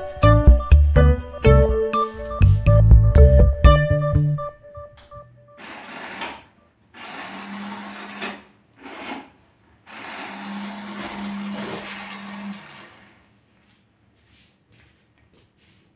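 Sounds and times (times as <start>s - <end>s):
toy car motor whirring: 5.6s - 9.2s, 9.9s - 13.2s
steady motor hum: 9.9s - 13.3s.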